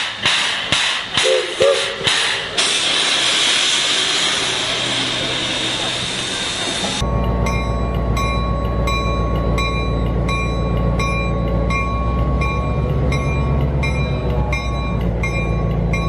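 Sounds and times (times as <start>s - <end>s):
low rumble of locomotive machinery: 0.0s - 16.0s
locomotive bell ringing: 4.4s - 16.0s.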